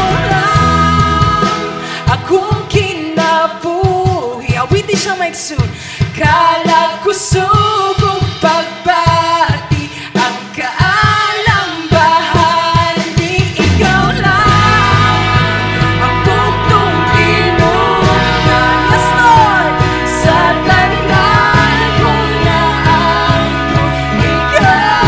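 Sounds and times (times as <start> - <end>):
deep bass: 0.0 - 1.8, 13.6 - 25.0
worship song singing: 0.0 - 4.6, 6.2 - 25.0.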